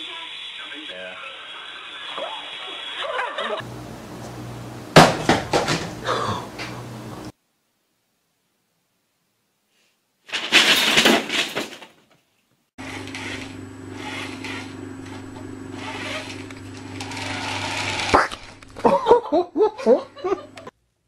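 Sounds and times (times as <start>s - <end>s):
low hum with hiss: 3.0s - 9.6s.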